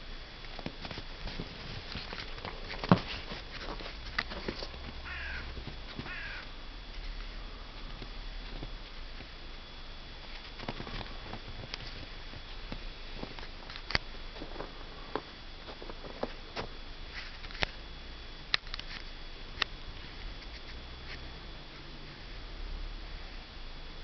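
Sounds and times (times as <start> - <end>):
paws crunching snow: 1.2 - 6.4, 10.5 - 17.4.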